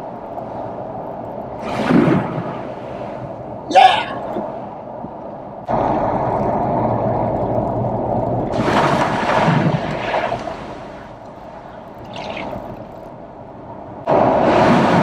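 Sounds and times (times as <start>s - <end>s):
engine and tyres rumbling: 0.0s - 15.0s
water hissing under wheels: 5.7s - 13.1s.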